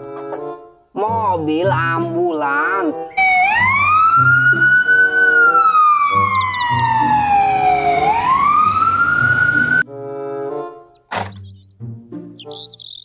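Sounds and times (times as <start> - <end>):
background music: 0.0 - 13.0
ambulance siren wailing: 3.1 - 9.8.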